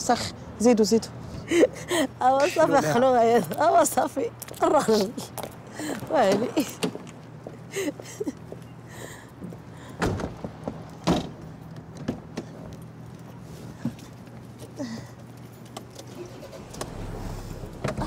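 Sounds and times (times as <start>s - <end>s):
car doors shutting: 16.0s - 18.0s
low steady hum: 16.2s - 18.0s.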